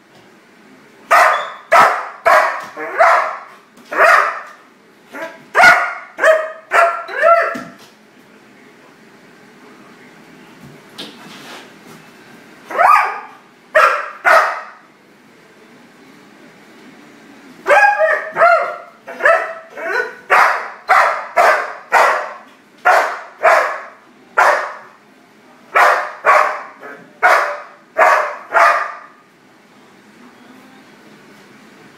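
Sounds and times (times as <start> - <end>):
dog barking: 1.1 - 7.8, 12.7 - 14.8, 17.6 - 25.0, 25.7 - 29.2.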